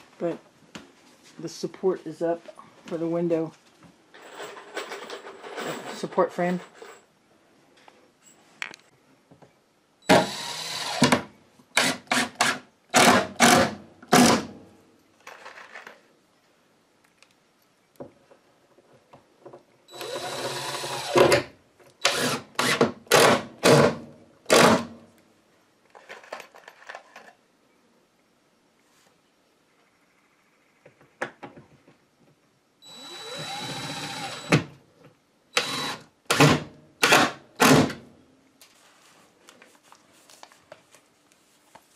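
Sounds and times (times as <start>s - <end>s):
cordless drill driving screws: 10.1s - 13.7s, 19.9s - 21.4s, 22.0s - 23.8s, 32.8s - 34.7s, 35.6s - 37.3s.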